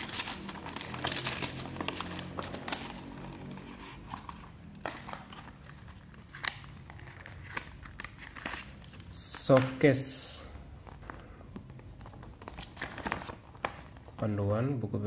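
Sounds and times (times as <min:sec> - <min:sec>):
plastic packaging crinkling: 0:00.0 - 0:09.2, 0:11.9 - 0:14.2.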